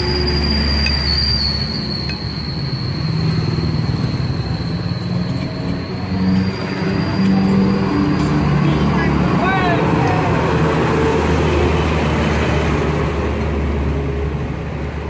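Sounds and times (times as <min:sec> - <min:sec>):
high-pitched whine: 0:00.0 - 0:11.8
diesel truck engine approaching: 0:00.0 - 0:15.0
road traffic: 0:00.0 - 0:15.0.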